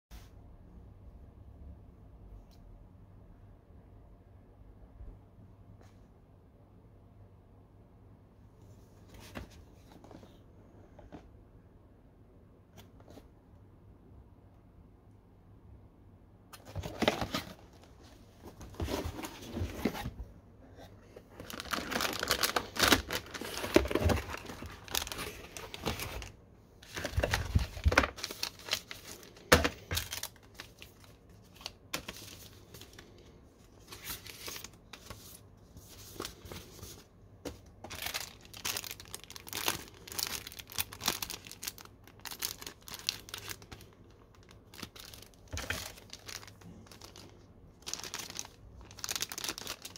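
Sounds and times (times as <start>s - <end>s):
cardboard box handled and opened: 16.6s - 30.7s, 33.8s - 39.0s
plastic bags crinkling: 21.2s - 33.2s, 37.8s - 49.9s.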